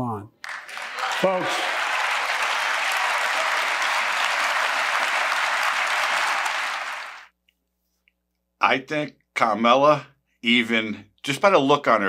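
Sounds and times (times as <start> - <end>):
audience applauding: 0.4 - 7.3.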